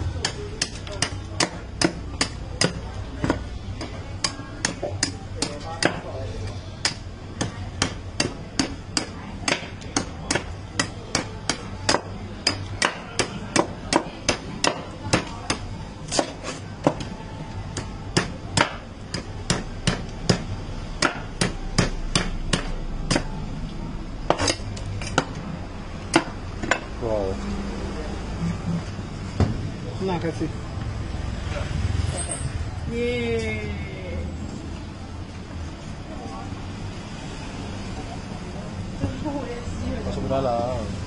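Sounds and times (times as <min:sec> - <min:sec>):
knife chopping coconut husk: 0:00.2 - 0:06.1, 0:06.8 - 0:23.4, 0:24.3 - 0:25.4, 0:26.1 - 0:26.9.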